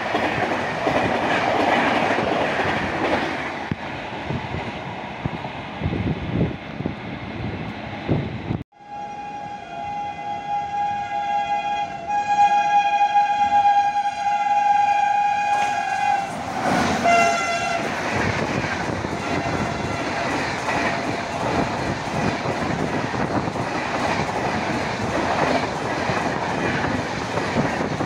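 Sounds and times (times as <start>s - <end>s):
train wheels clattering on rails: 0.0s - 5.4s, 15.5s - 28.0s
train horn blast: 8.7s - 17.9s, 19.1s - 20.3s.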